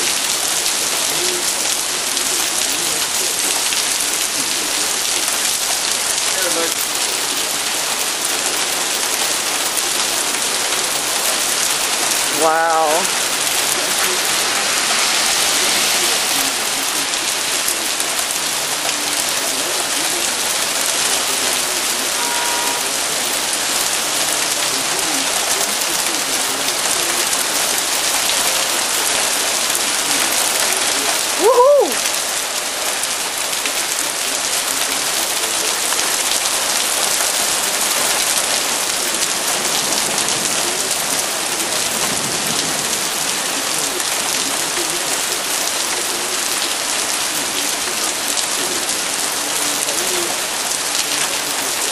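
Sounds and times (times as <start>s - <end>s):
heavy rain and hail on pavement: 0.0s - 51.9s
person exclaiming: 12.3s - 13.1s, 31.4s - 32.1s.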